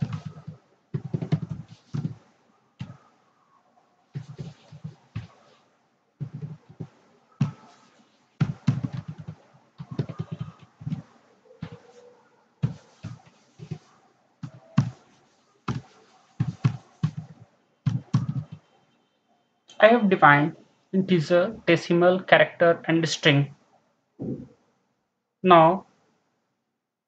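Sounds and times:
keyboard typing: 0:00.0 - 0:02.2, 0:04.2 - 0:05.4, 0:06.2 - 0:15.0, 0:15.7 - 0:18.7.

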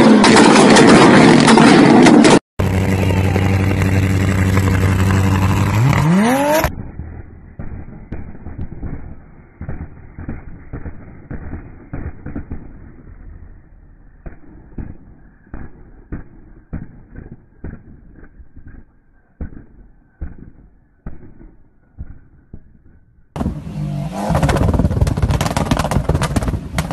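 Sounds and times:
rally car idling: 0:02.6 - 0:20.6
car engine with exhaust pops: 0:02.6 - 0:26.9.

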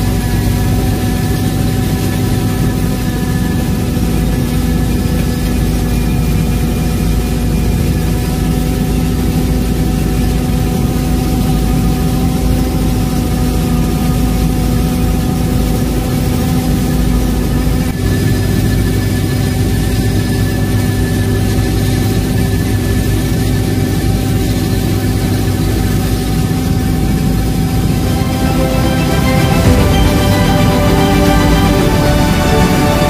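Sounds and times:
helicopter cabin drone: 0:00.0 - 0:33.0.

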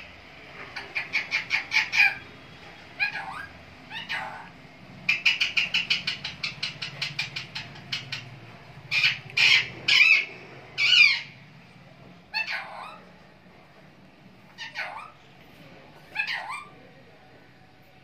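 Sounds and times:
parakeet chattering: 0:00.6 - 0:11.4, 0:12.3 - 0:13.1, 0:14.5 - 0:15.2, 0:16.0 - 0:16.8
parakeet harsh squawks: 0:00.8 - 0:08.3, 0:08.9 - 0:11.4, 0:12.3 - 0:13.1, 0:14.5 - 0:15.2, 0:16.0 - 0:16.8.

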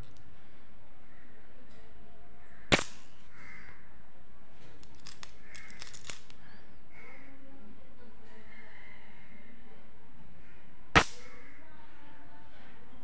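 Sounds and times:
metal coins clinking: 0:04.8 - 0:06.4.

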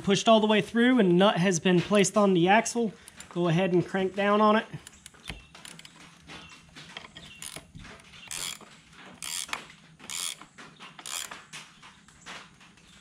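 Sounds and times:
ratchet wrench clicking: 0:07.4 - 0:07.6, 0:08.2 - 0:08.6, 0:09.2 - 0:11.4.

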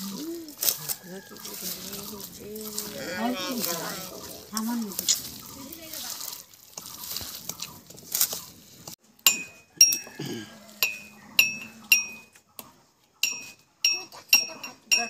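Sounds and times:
hands squelching food in bowl: 0:00.0 - 0:09.0.

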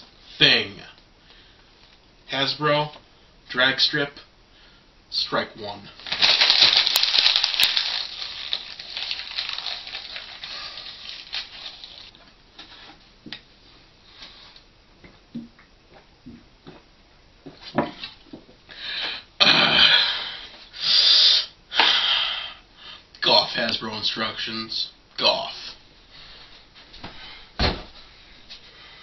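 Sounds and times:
paper crumpling: 0:06.0 - 0:12.1.

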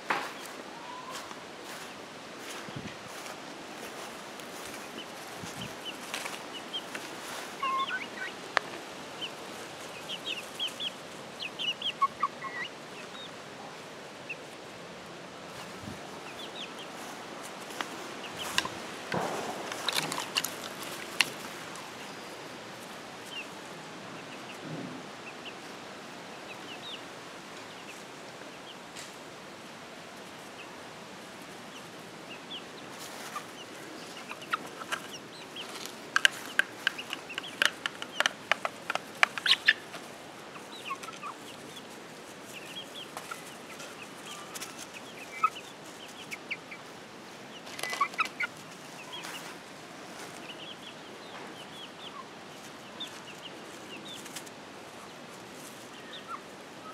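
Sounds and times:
chickens clucking and chirping: 0:00.0 - 0:56.9
beaks tapping on a plate: 0:36.2 - 0:39.8.

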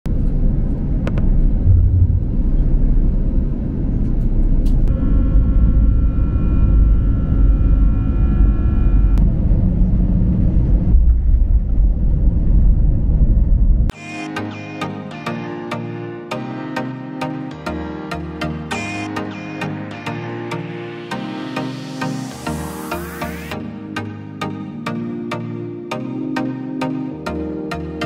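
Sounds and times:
deep rumble of aircraft on runway: 0:00.1 - 0:13.9
jet engine whine: 0:00.1 - 0:13.9.

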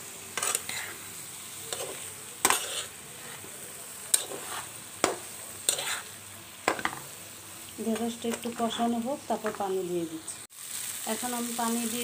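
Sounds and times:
oil sizzling: 0:00.0 - 0:12.0
metal spatula scraping a pan: 0:00.3 - 0:07.1.

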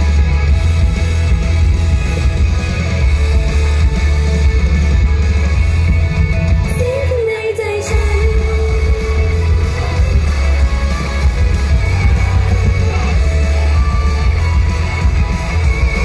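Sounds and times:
heavy bass beat: 0:00.0 - 0:07.0, 0:07.9 - 0:16.0
upbeat pop song over pa: 0:00.0 - 0:16.0.

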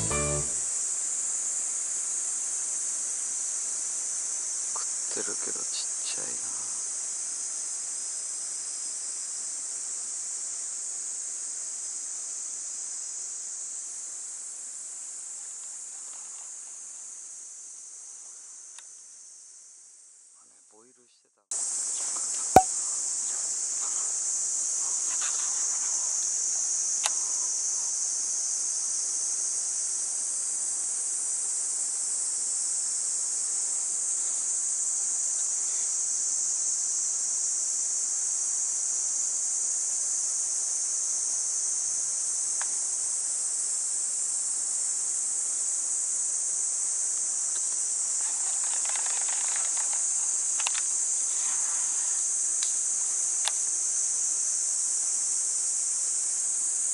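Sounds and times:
insects shrilling: 0:47.4 - 0:55.9.

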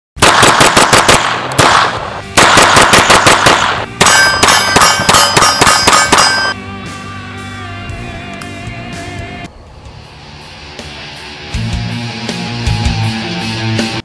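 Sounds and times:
pistol firing rapidly: 0:00.2 - 0:06.6
steel targets ringing: 0:04.0 - 0:06.6.

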